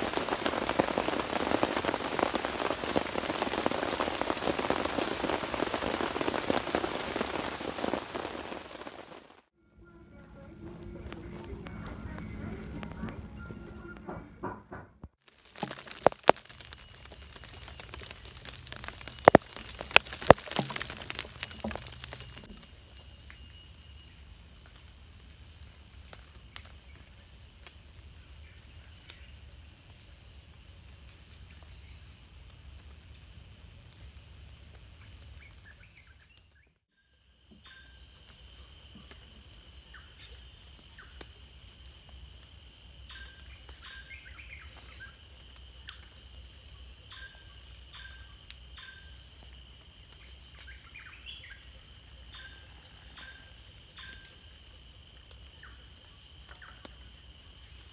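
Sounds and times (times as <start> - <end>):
insects droning: 0.0 - 14.0, 15.3 - 57.9
bird long rising whistle: 20.9 - 25.2, 37.6 - 42.1, 43.0 - 49.2, 52.4 - 57.8.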